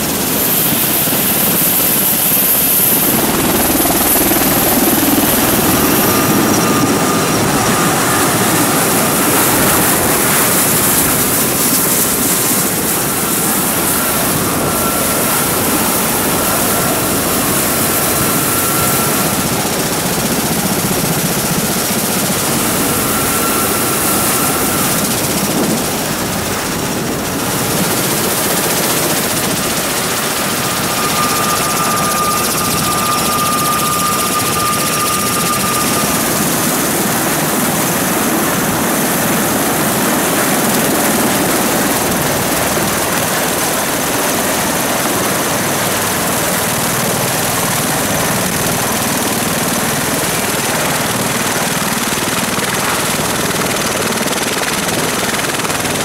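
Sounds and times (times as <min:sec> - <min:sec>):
rotor and turbine noise: 0:00.0 - 0:56.0
thin high whine: 0:00.2 - 0:49.3.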